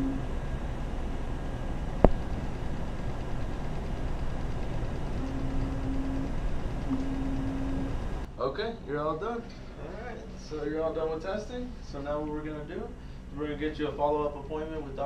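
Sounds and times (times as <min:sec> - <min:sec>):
low steady tone: 0:00.0 - 0:01.0, 0:04.3 - 0:08.3
machine humming: 0:00.0 - 0:15.0.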